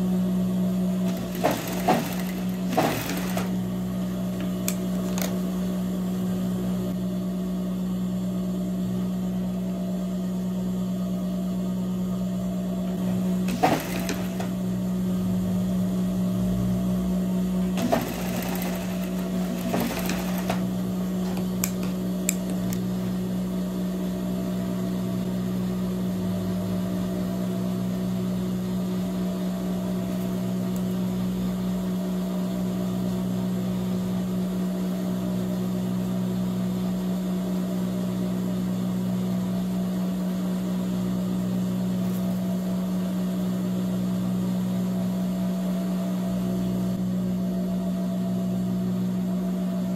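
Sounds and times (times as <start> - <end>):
sewing machine motor humming: 0.7 - 5.9, 12.9 - 14.8, 17.6 - 23.2.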